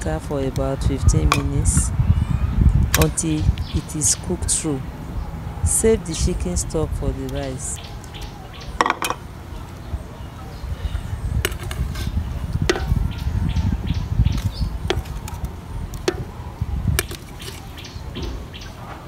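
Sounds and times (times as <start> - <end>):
low rumble: 9.4 - 17.1.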